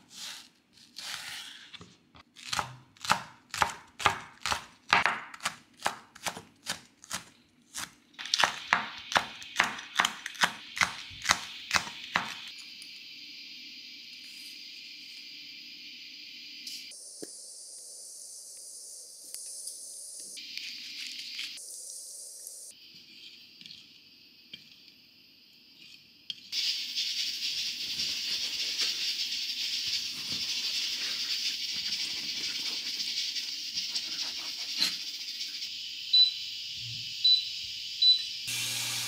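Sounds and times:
knife chopping on wooden board: 2.4s - 12.4s
steady high hiss: 10.7s - 34.0s.

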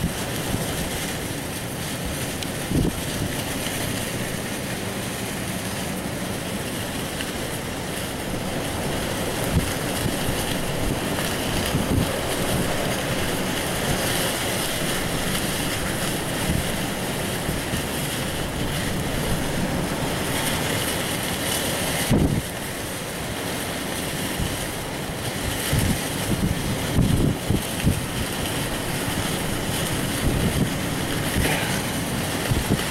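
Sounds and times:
wind buffeting microphone: 0.0s - 32.9s
high wind rushing: 29.4s - 32.9s.

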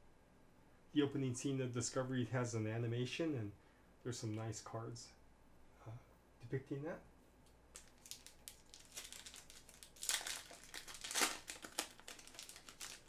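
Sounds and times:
foil pack crinkling: 7.7s - 13.0s.

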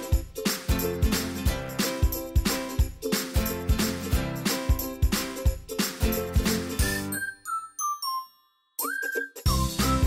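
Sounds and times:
upbeat music with drum beat: 0.0s - 7.4s, 8.8s - 10.0s
whistled descending notes: 6.8s - 10.0s.

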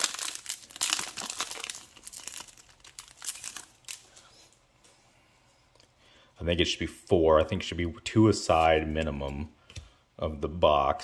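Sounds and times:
foil wrapper crinkling and tearing: 0.0s - 4.2s.

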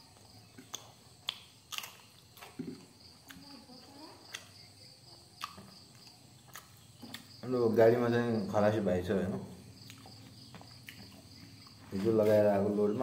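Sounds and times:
crickets chirring: 0.0s - 13.0s.

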